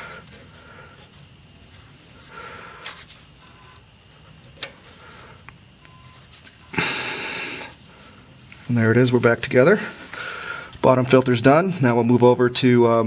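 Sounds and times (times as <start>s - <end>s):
man breathing heavily: 0.0s - 1.3s, 2.0s - 3.1s, 4.1s - 5.5s, 6.7s - 8.4s, 9.7s - 10.8s
loud breath out: 6.7s - 8.2s, 9.9s - 10.8s.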